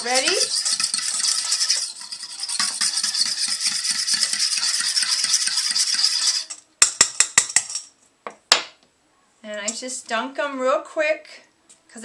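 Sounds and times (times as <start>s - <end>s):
fork tapping metal bowl: 0.0s - 1.6s
fork beating batter in bowl: 0.0s - 7.8s.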